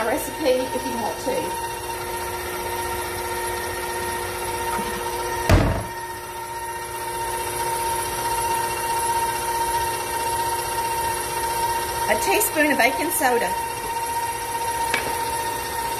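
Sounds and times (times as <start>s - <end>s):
electric mixer motor whining: 0.0s - 15.9s
short thump: 5.5s - 6.0s.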